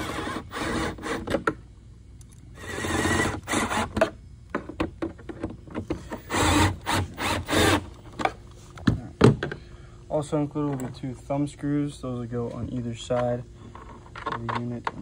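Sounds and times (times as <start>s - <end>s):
cordless drill driving screws: 0.0s - 1.4s, 2.6s - 4.0s, 6.2s - 7.9s.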